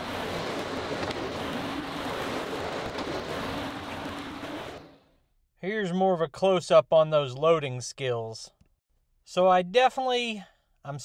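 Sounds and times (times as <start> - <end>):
skid-steer loader running: 0.0 - 5.0.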